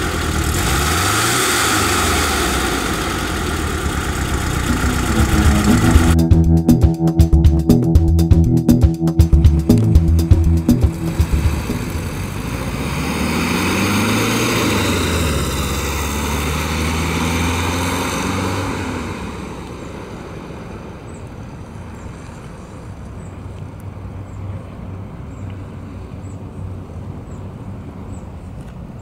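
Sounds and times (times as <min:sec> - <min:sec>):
car engine accelerating: 0:00.0 - 0:07.3, 0:09.1 - 0:19.5.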